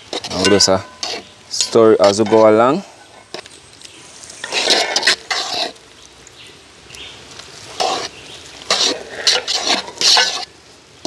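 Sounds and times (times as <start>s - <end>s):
spoons scraping in metal pots: 0.0s - 6.0s, 7.6s - 10.6s.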